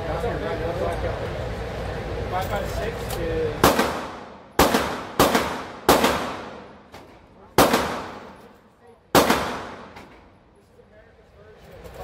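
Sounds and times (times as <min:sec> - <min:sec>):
handgun shots echoing: 0:03.6 - 0:08.6, 0:09.2 - 0:10.2.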